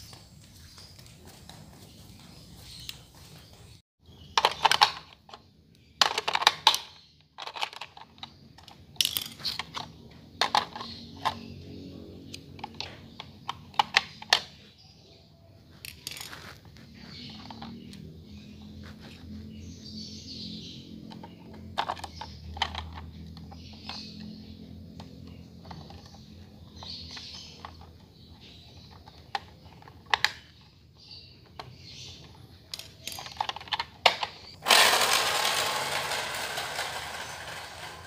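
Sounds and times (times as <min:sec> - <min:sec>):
plastic toy car clicks and taps: 0:12.3 - 0:14.6, 0:21.1 - 0:24.3, 0:25.0 - 0:30.7, 0:31.4 - 0:35.2
toy car motor whirring: 0:34.5 - 0:38.0.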